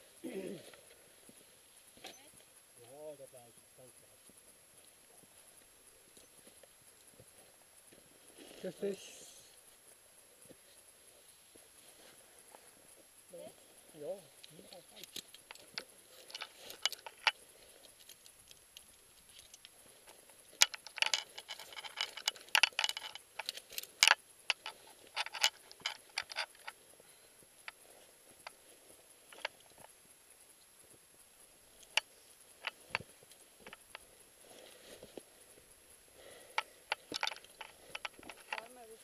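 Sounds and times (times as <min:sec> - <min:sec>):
metal climbing gear clinking: 0:14.4 - 0:29.9, 0:31.7 - 0:35.5, 0:36.1 - 0:38.9.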